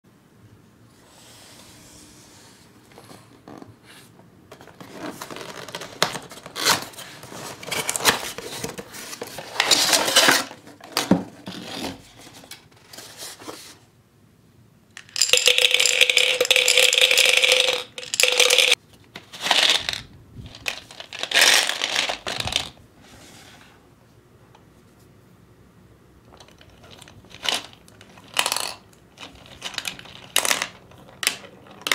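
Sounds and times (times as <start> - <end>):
gumballs rattling in plastic globe: 15.0 - 18.8, 19.4 - 22.8, 26.4 - 31.9.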